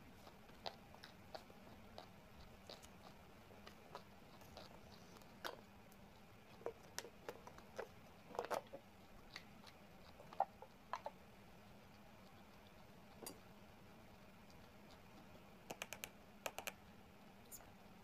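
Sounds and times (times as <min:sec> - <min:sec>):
person chewing food: 0:00.1 - 0:13.5.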